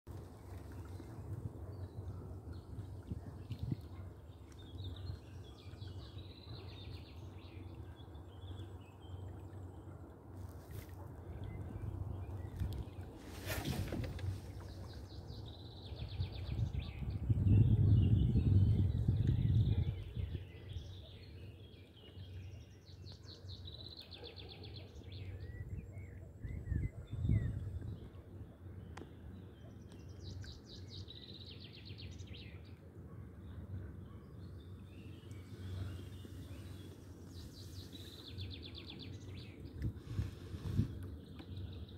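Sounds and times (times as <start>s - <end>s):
small birds chirping and trilling: 33.4s - 41.9s.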